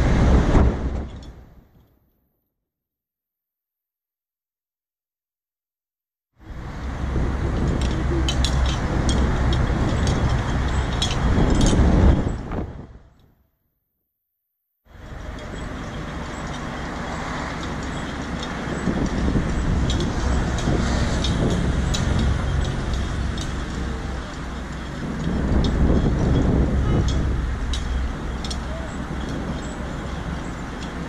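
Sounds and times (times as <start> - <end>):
idling engines and traffic rumble: 0.0 - 1.9, 6.4 - 13.3, 14.9 - 31.0.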